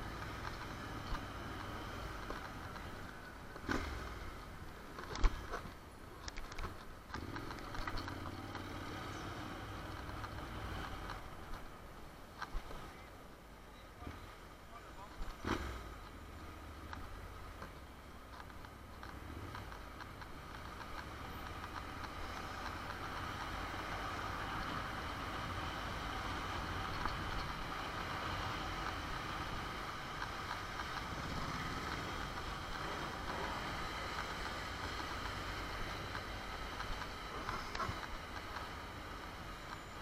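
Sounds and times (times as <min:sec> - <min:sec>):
road and air noise: 0:00.0 - 0:40.0
motorcycle engine running: 0:18.5 - 0:40.0.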